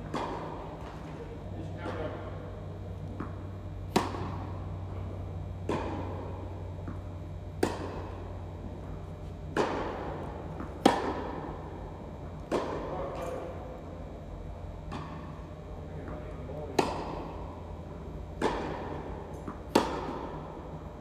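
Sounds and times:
tennis ball hitting racquet: 0.0 - 1.0, 3.1 - 13.3, 16.1 - 20.6
steady low hum: 0.0 - 21.0.

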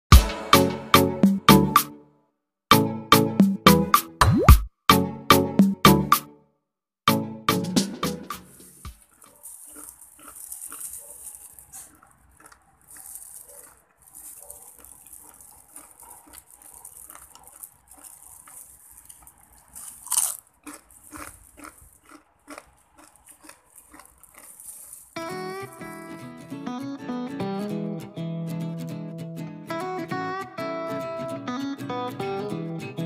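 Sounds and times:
plastic glove crinkling: 8.4 - 22.1, 22.7 - 26.2
fried chicken skin crunching: 8.4 - 26.2.

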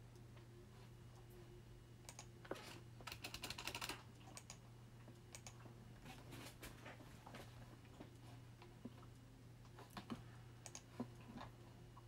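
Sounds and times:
low steady hum: 0.0 - 12.0
typing on computer keyboard: 3.0 - 4.6.

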